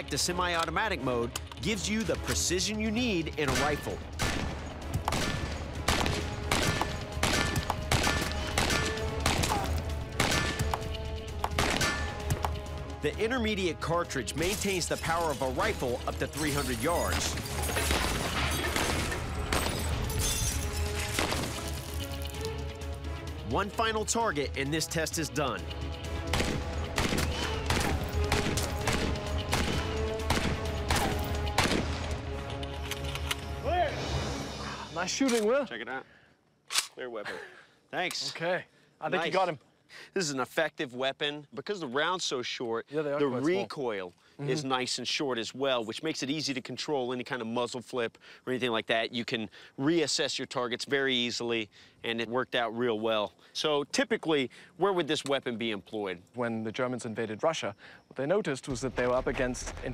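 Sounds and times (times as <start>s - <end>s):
bullets hitting metal targets: 3.4s - 12.6s
rifle single shots: 3.5s - 10.7s, 11.5s - 12.0s, 26.3s - 32.1s.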